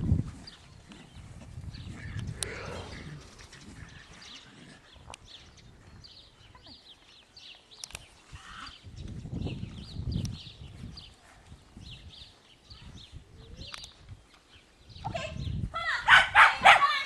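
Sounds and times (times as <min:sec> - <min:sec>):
wind rumble on microphone: 0:00.0 - 0:06.8, 0:07.9 - 0:17.0
small birds chirping: 0:00.0 - 0:17.0
sharp clicks: 0:02.1 - 0:02.7, 0:07.7 - 0:08.1, 0:13.6 - 0:14.4.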